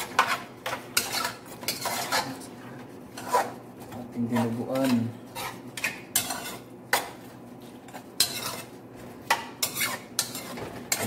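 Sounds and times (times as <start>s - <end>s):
spoon stirring meat in pot: 0.0s - 2.4s, 3.1s - 11.0s.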